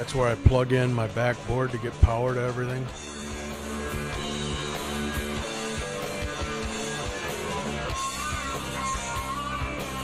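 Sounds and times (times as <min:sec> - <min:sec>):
guitar-led rock music: 0:00.0 - 0:10.0.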